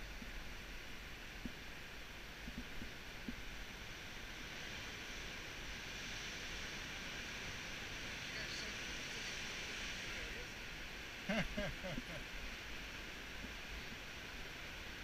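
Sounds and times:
distant sea surf hiss: 0:00.0 - 0:15.0
steady wind: 0:00.0 - 0:15.0.

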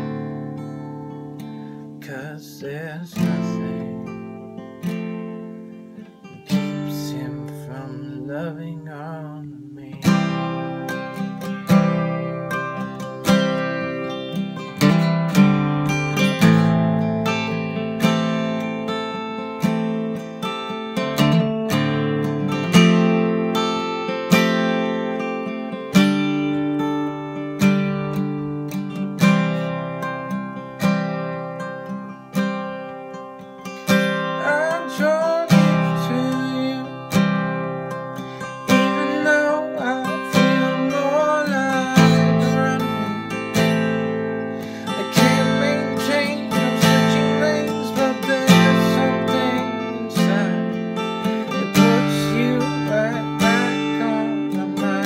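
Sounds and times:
acoustic guitar strumming chords: 0:00.0 - 0:55.0.

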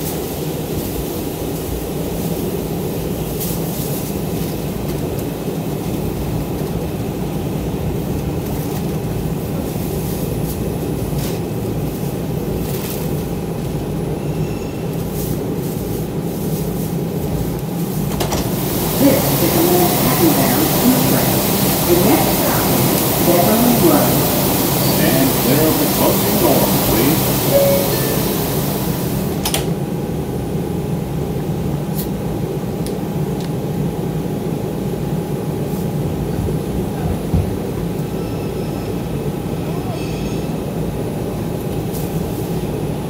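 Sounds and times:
subway car wheels rumbling: 0:00.0 - 0:43.0
hiss: 0:18.3 - 0:29.5.

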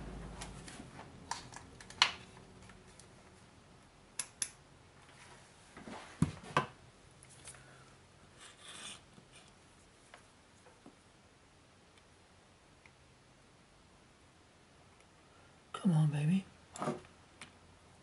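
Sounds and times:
soft rustle: 0:05.0 - 0:06.6.

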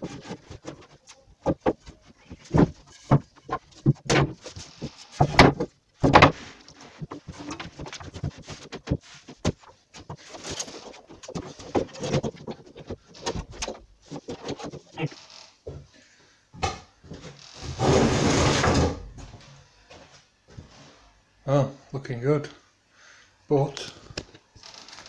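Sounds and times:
worktop piece knocking and scraping: 0:00.0 - 0:14.9.

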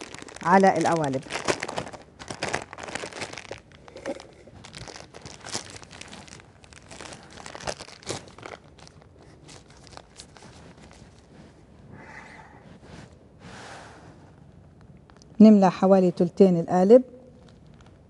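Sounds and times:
plastic piping bag crinkling: 0:00.0 - 0:11.7, 0:17.3 - 0:18.0.

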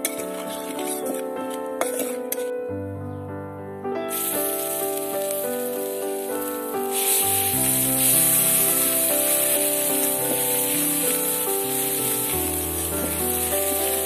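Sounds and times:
background music with held notes: 0:03.9 - 0:14.0
spices sizzling in hot oil: 0:04.1 - 0:14.0.

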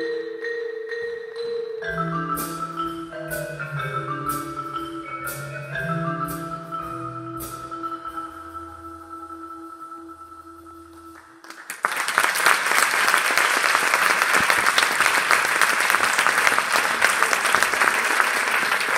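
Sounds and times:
mallet percussion chord ringing: 0:00.0 - 0:11.2
audience applause: 0:11.4 - 0:18.9.

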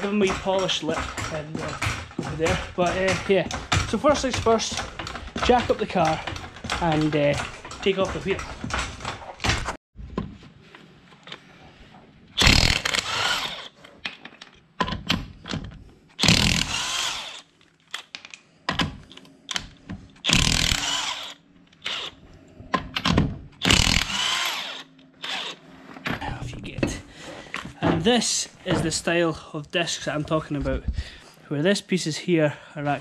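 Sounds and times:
impact wrench hammering nuts: 0:00.0 - 0:09.8, 0:12.4 - 0:13.7, 0:14.8 - 0:17.4, 0:19.5 - 0:22.1, 0:22.8 - 0:25.6.

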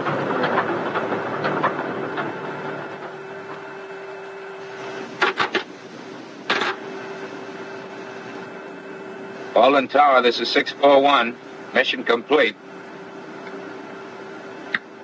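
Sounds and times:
aircraft engine noise: 0:00.0 - 0:15.0
steady hum: 0:00.0 - 0:15.0.

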